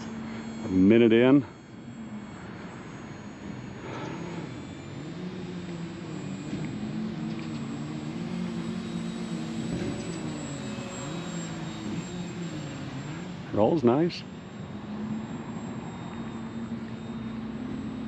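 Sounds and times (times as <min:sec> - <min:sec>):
model plane motor droning: 0:00.0 - 0:18.0.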